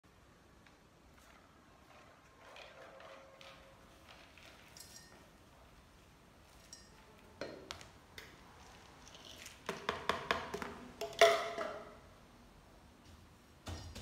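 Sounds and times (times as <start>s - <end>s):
spoon clinking against containers: 1.9s - 5.4s, 6.5s - 12.0s.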